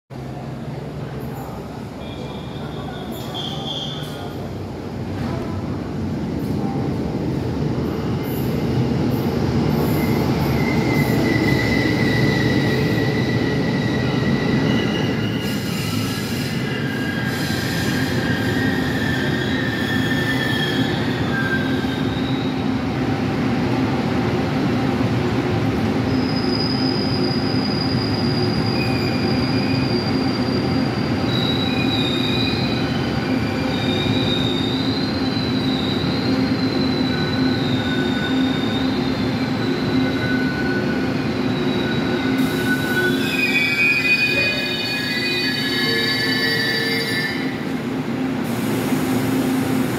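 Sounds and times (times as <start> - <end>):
train rumbling over rails: 0.1 - 49.9
high-pitched brake squeals: 2.0 - 4.4, 9.9 - 22.6, 26.1 - 47.7.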